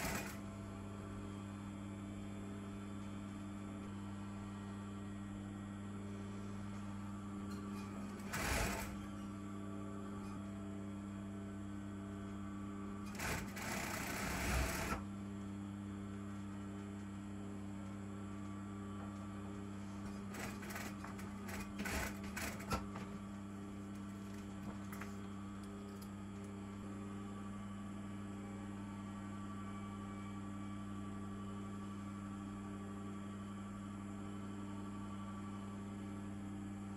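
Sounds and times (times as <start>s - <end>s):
sewing machine stitching: 0.0s - 0.4s, 8.2s - 9.0s, 13.1s - 15.0s, 20.3s - 22.8s
steady hum: 0.0s - 36.9s.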